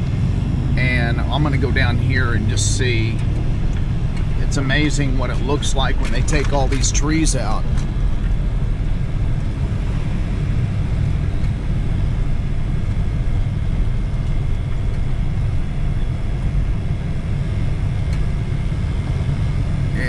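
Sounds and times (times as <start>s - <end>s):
low rumble: 0.0s - 20.0s.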